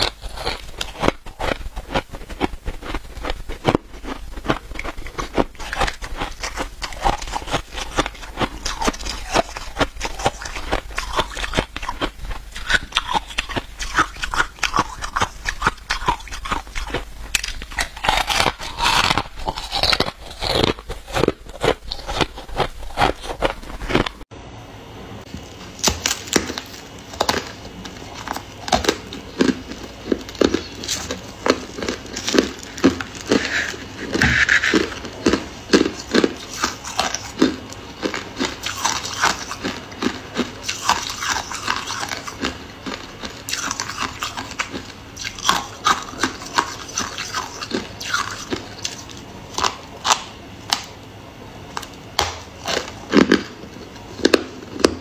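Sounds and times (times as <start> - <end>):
crunchy chewing of frost: 0.0 - 24.3, 25.4 - 51.0, 51.6 - 55.0.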